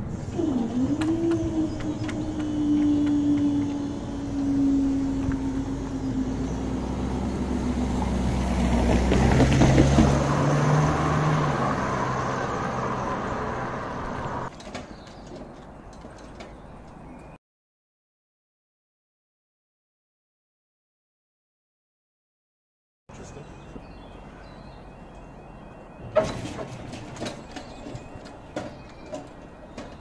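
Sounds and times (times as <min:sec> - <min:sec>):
crossing barrier machine hum: 0:00.0 - 0:17.3, 0:23.1 - 0:30.0
car driving past: 0:00.5 - 0:14.5.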